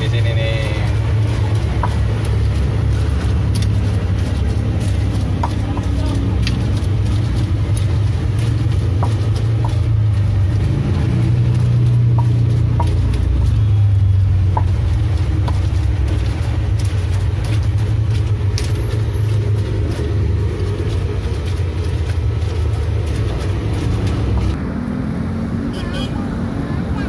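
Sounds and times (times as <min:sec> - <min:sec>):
stone pestle grinding in mortar: 0:00.0 - 0:24.6
steady low rumble: 0:00.0 - 0:24.7.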